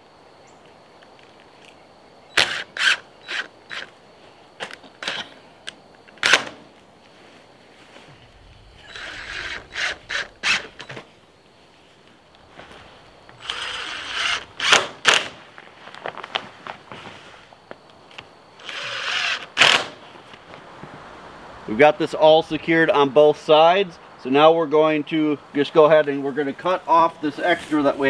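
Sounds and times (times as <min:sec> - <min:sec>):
cordless drill driving screws: 0:08.8 - 0:11.0, 0:13.4 - 0:15.2, 0:18.6 - 0:19.9.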